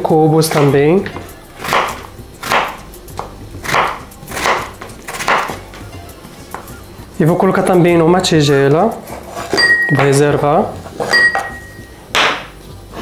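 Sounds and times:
knife slicing potato: 0:00.5 - 0:06.8.

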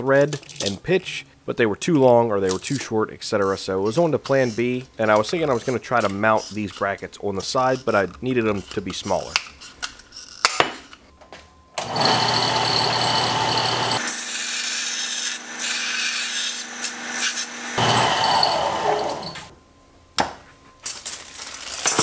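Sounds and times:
small metal parts clinking: 0:00.3 - 0:00.8, 0:20.8 - 0:22.0
belt sander grinding metal: 0:11.8 - 0:19.5.

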